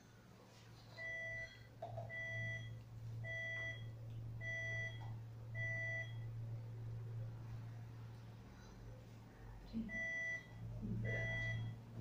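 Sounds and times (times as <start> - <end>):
two-tone electronic beep: 9.9 - 11.8.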